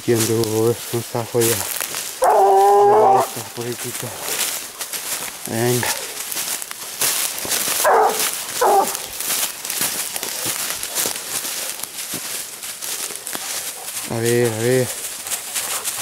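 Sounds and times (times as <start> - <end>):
footsteps crunching leaf litter: 0.0 - 16.0
dog yelping: 2.2 - 3.4, 7.8 - 9.0.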